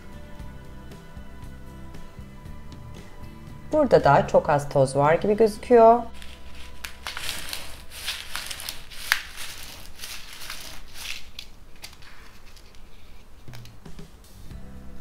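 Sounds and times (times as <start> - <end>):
cat litter crunching: 6.1 - 13.3.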